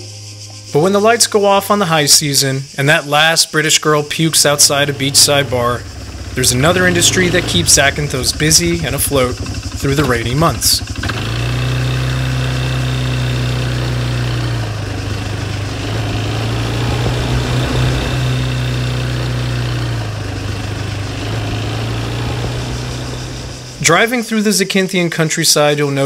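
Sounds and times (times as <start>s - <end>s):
motor scooter engine running: 4.5s - 24.1s
air rushing past: 15.1s - 24.0s.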